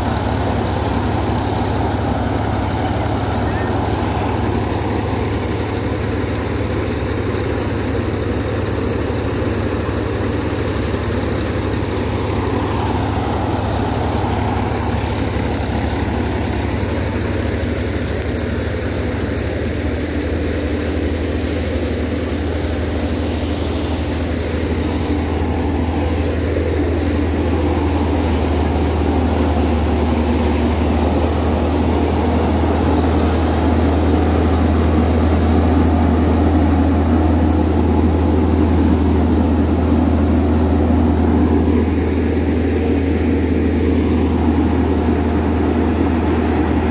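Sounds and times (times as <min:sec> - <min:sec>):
steady whine: 0:00.0 - 0:46.9
tractor diesel engine running: 0:00.0 - 0:46.9.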